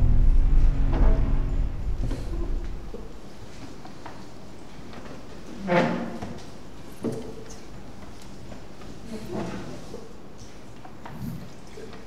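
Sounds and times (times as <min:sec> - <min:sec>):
deep low rumble: 0:00.0 - 0:03.3.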